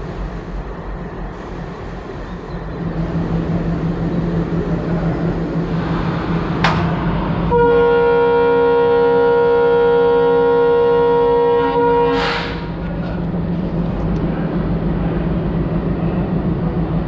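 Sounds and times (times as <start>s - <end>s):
train running rumble: 0.0s - 17.0s
locomotive air horn blast: 7.4s - 12.8s.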